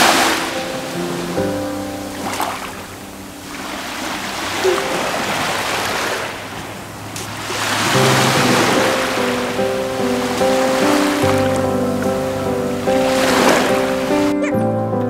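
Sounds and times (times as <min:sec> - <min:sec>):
sea waves washing on shore: 0:00.0 - 0:14.3
soft background music: 0:07.9 - 0:15.0.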